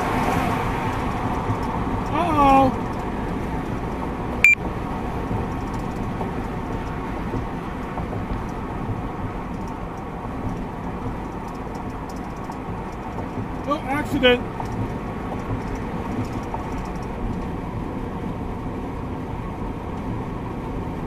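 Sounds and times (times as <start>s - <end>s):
car road and engine noise: 0.0s - 21.0s.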